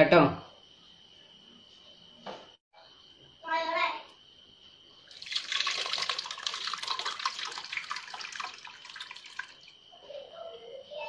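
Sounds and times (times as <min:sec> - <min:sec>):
liquid pouring and splashing: 0:05.1 - 0:09.8.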